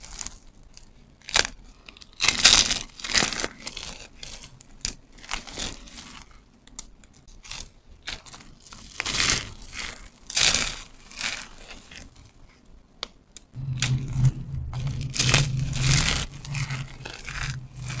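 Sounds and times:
low steady hum: 13.6s - 18.0s.

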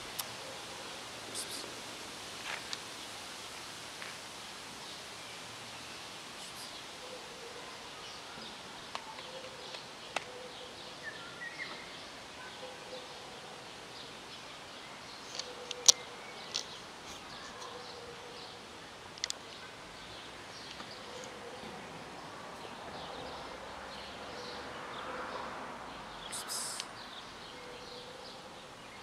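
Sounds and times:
steady hiss: 0.0s - 7.0s.

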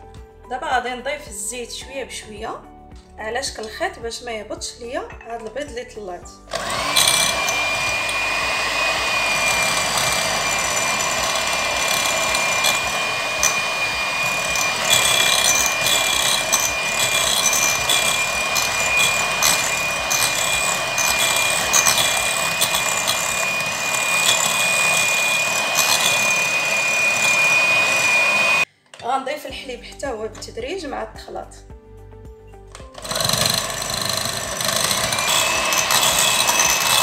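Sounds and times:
electric hand mixer whining: 6.5s - 28.7s, 32.8s - 37.0s.

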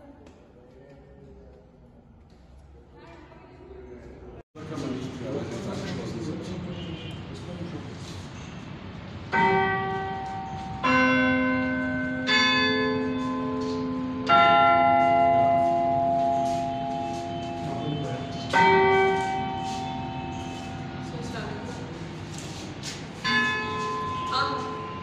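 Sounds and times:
clock chime bells striking: 9.3s - 21.8s, 23.2s - 25.0s.

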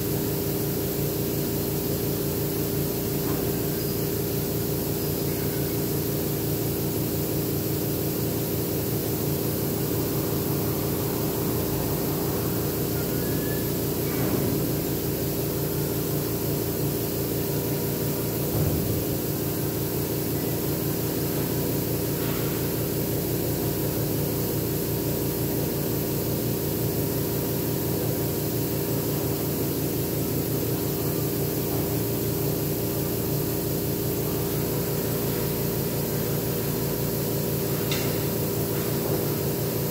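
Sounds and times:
air compressor humming: 0.0s - 39.9s.

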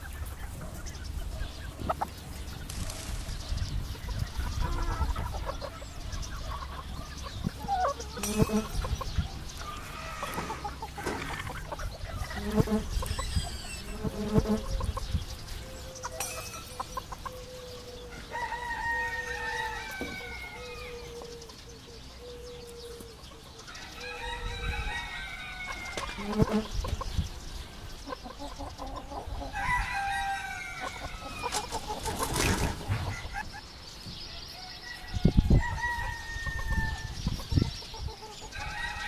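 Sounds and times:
chickens clucking: 0.0s - 39.0s
rooster crowing: 18.0s - 21.3s, 23.7s - 26.4s, 29.5s - 31.5s, 34.6s - 37.2s, 38.5s - 39.0s.

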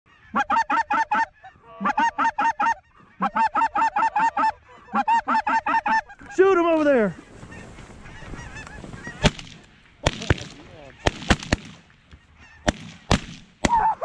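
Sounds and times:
goose call clucking: 0.1s - 9.3s, 12.1s - 14.0s.

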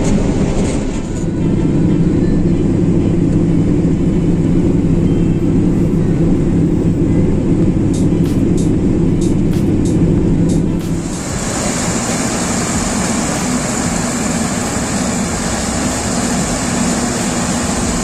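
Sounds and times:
combine harvester running: 0.0s - 18.0s
auger unloading corn: 10.8s - 18.0s.

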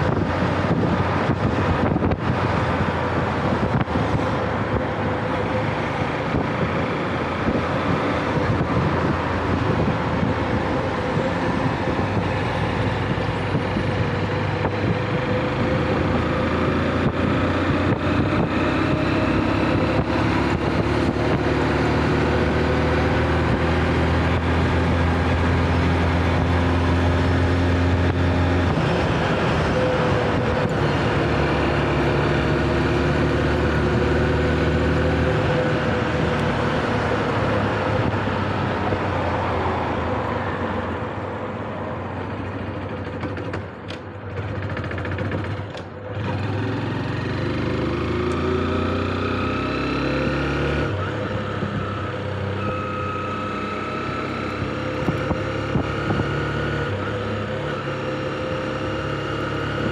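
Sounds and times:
road and wind noise: 0.0s - 59.9s
small motorcycle engine running: 44.3s - 48.6s.

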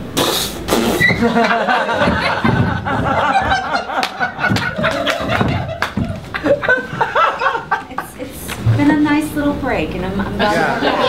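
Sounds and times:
audience laughing: 1.0s - 8.4s, 10.1s - 11.0s.

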